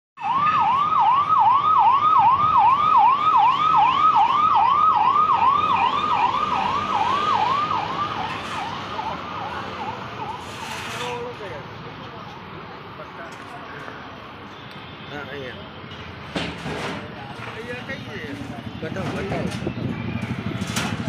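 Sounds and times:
electronic siren wailing: 0.2 - 10.5.

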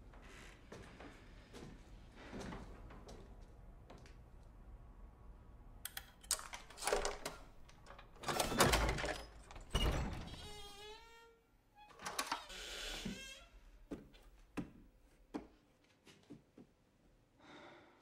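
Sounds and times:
wooden door creaking open: 6.3 - 13.7.

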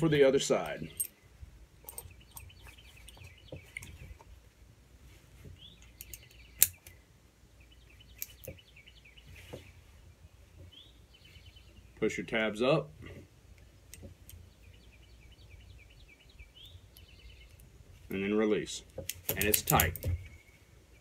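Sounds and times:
faint birds chirping: 0.0 - 21.0
metal buckle clicking: 0.6 - 1.2, 1.8 - 4.0, 5.8 - 7.0, 19.0 - 20.2.

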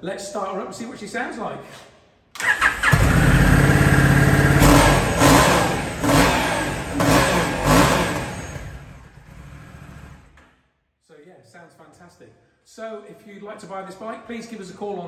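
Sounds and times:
electric starter cranking: 2.4 - 9.2
motorcycle engine revving: 2.4 - 10.4.

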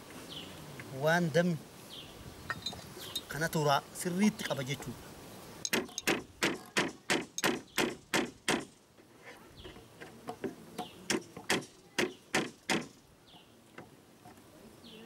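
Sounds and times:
hammer striking nails into wood: 5.7 - 8.7, 10.3 - 13.0.

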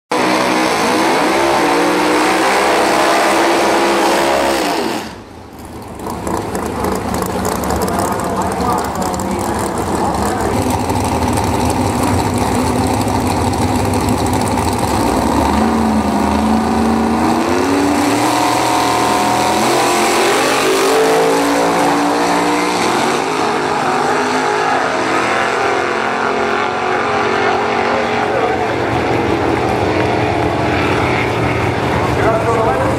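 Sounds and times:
drag car engines roaring: 0.1 - 32.9.

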